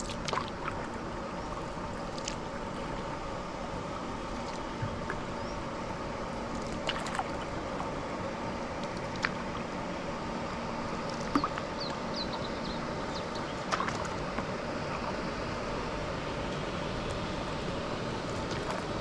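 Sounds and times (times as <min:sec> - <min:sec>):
paddle splashes and drips: 0:00.0 - 0:03.0, 0:06.6 - 0:07.9, 0:13.3 - 0:15.2
water sloshing and gurgling: 0:00.0 - 0:19.0.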